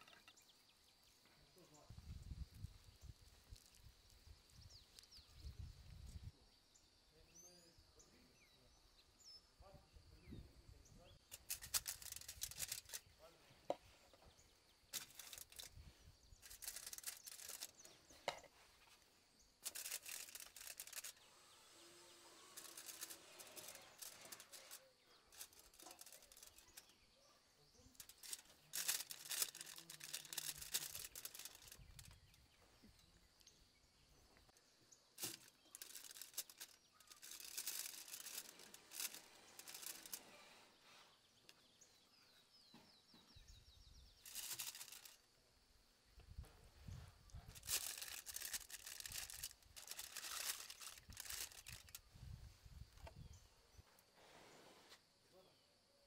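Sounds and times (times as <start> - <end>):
aluminium foil crinkling: 11.3 - 13.0, 14.9 - 18.0, 19.6 - 21.5, 22.2 - 27.0, 27.9 - 32.4, 35.2 - 40.3, 44.2 - 45.2, 47.5 - 52.0.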